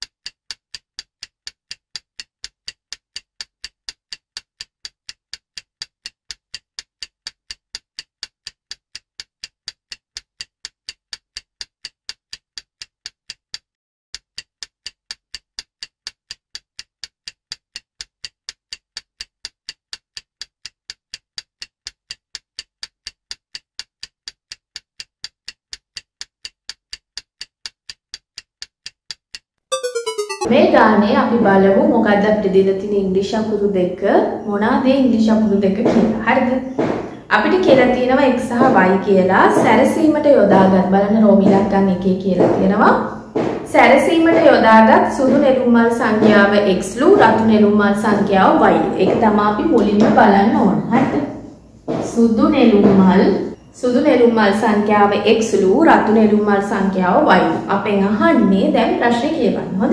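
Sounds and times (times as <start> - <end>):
stopwatch ticking: 0.0 - 30.5.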